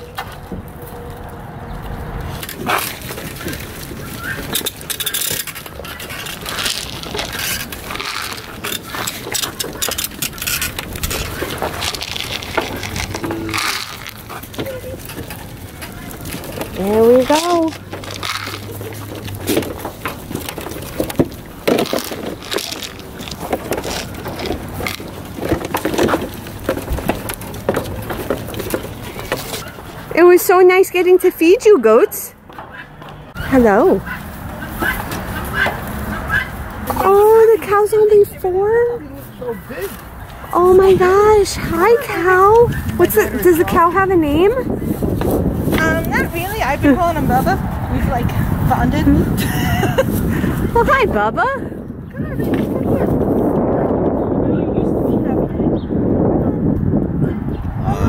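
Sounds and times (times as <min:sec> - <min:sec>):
wire mesh rattling: 0:02.3 - 0:30.0
goats knocking at fence: 0:02.5 - 0:29.8.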